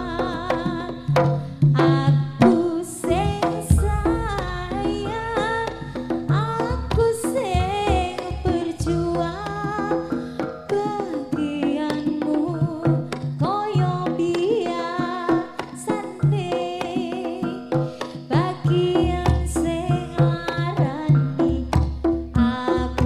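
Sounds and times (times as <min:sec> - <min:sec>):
gamelan instruments: 0:00.0 - 0:23.0
hand drum strokes: 0:00.0 - 0:23.0
woman singing ornamented melody: 0:01.8 - 0:17.7, 0:18.3 - 0:21.7.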